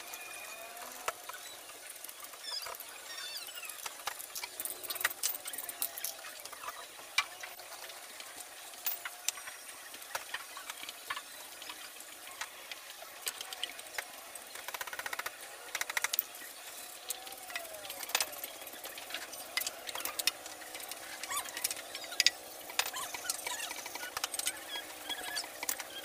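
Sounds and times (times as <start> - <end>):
high squeaks: 19.4 - 26.0.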